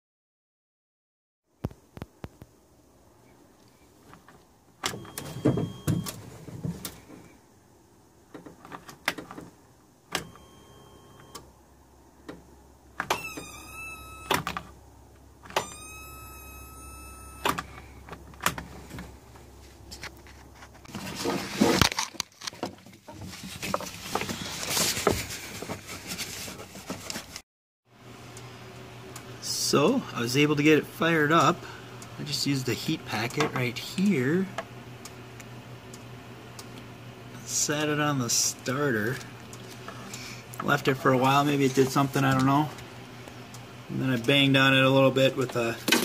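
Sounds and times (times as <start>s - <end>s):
electric starter whining: 12.9s - 19.1s.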